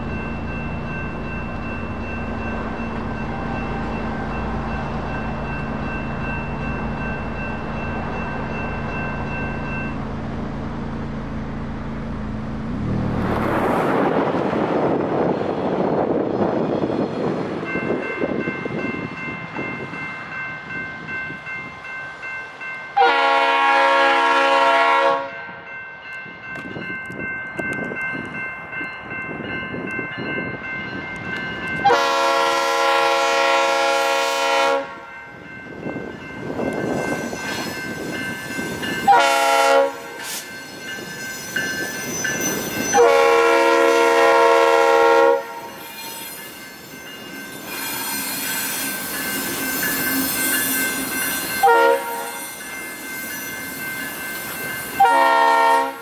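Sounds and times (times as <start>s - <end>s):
electronic crossing bell ringing: 0.0s - 10.2s, 45.6s - 55.1s
locomotive air horn blasts: 23.0s - 25.6s, 31.8s - 35.1s, 39.1s - 40.2s, 42.9s - 45.8s, 51.6s - 52.5s, 55.0s - 56.0s.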